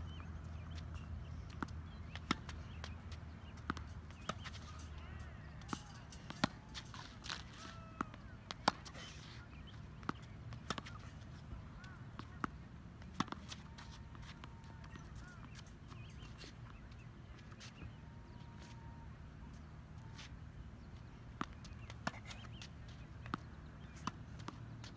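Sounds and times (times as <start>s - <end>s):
tennis balls bouncing on court: 0.1s - 24.9s
racket striking tennis ball: 1.6s - 16.4s.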